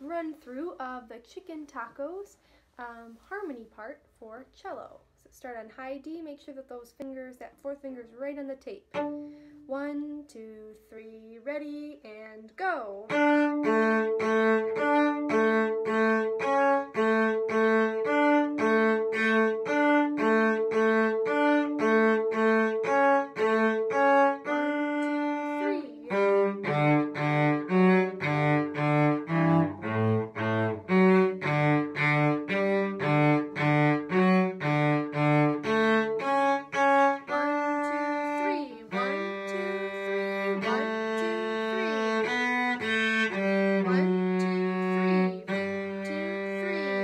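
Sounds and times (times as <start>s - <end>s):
cello playing bowed notes: 8.9s - 9.8s, 13.0s - 47.0s.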